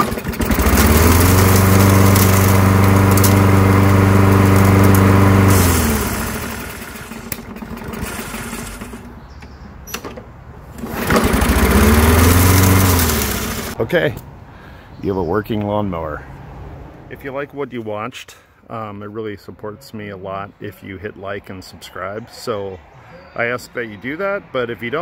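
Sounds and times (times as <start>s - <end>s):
lawn mower engine running: 0.0s - 13.8s.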